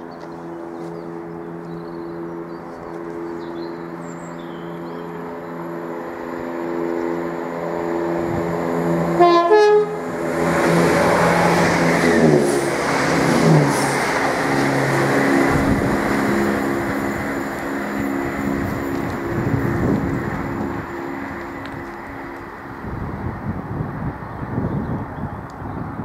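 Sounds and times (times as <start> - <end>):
train wheels rumbling: 0.0 - 25.4
diesel train engines running: 0.0 - 26.0
train horn blast: 7.9 - 12.3.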